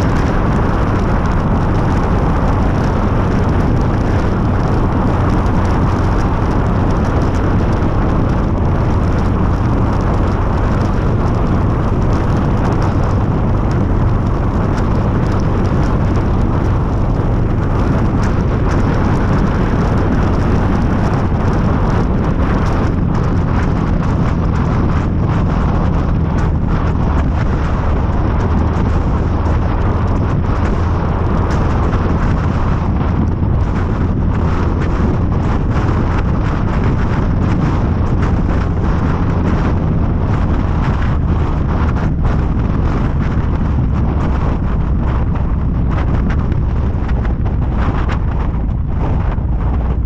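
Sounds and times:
motorcycle engine running: 0.0 - 50.0
wind buffeting microphone: 0.0 - 50.0.

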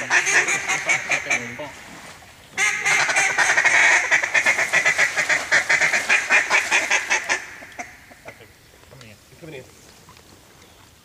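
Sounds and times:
duck call quacks and chatter: 0.0 - 1.6, 2.6 - 8.5
water splashing: 0.0 - 11.0.

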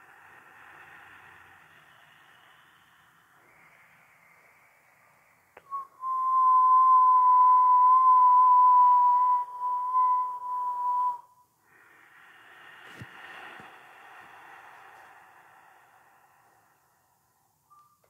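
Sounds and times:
person whistling a long note: 5.6 - 11.5, 17.6 - 18.0.

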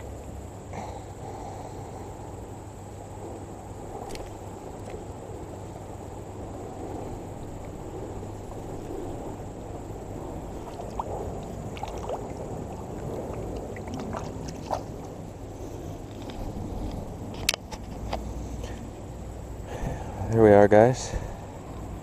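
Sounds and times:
creek water running: 7.3 - 21.7.

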